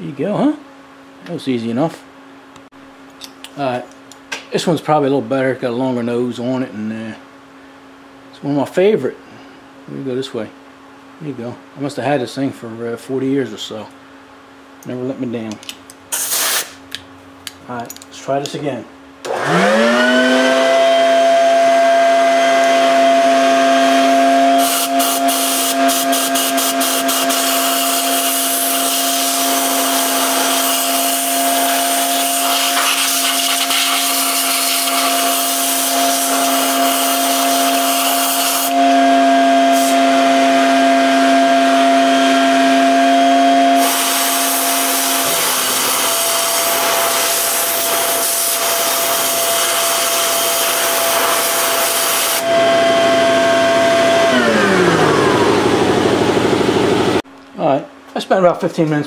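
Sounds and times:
compressed air hissing: 16.1s - 16.8s, 24.6s - 31.8s, 43.8s - 52.4s
vacuum cleaner motor whining: 19.2s - 57.2s.

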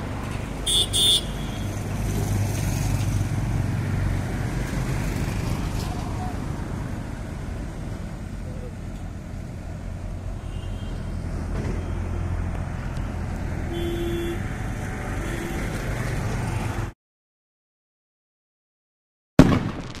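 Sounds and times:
road traffic rumble: 0.0s - 17.0s
vehicle horn honk: 0.6s - 1.8s, 10.4s - 11.1s, 13.7s - 14.4s, 15.2s - 15.7s.

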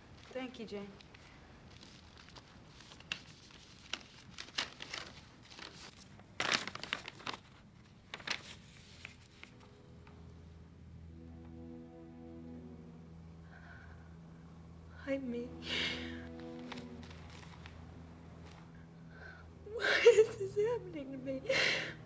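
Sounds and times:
paper rustling: 1.0s - 9.8s, 16.3s - 17.8s, 18.4s - 18.8s
low held musical note: 9.4s - 22.0s.

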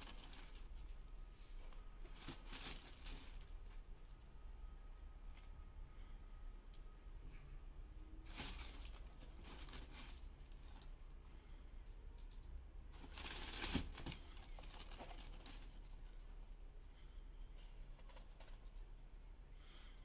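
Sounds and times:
tissue paper rustling: 0.0s - 1.0s, 2.0s - 3.8s, 8.2s - 10.9s, 12.9s - 15.9s.

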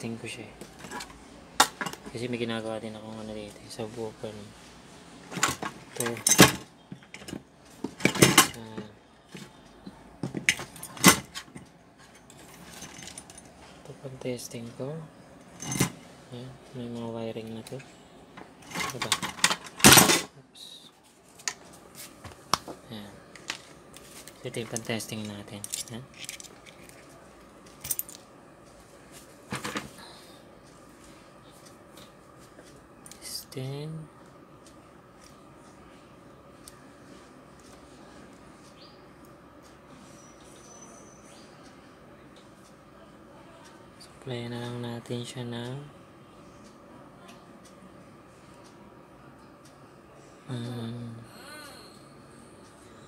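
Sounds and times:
tools clattering on workbench: 5.3s - 8.6s, 10.2s - 13.5s, 15.4s - 16.0s, 18.6s - 20.3s.

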